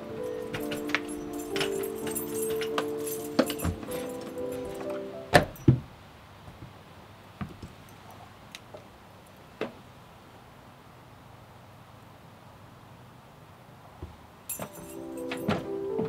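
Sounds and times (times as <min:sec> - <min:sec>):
held music notes: 0:00.0 - 0:05.7, 0:14.5 - 0:16.0
keys and door lock clicks: 0:00.0 - 0:05.7, 0:14.5 - 0:16.0.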